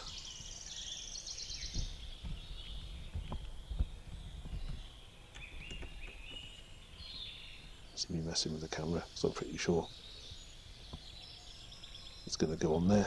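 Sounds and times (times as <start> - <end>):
birds singing and chirping: 0.0 - 13.0.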